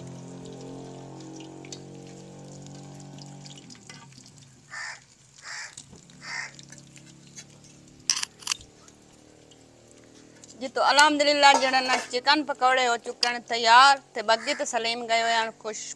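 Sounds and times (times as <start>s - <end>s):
crow cawing: 4.7s - 6.7s, 14.3s - 14.8s.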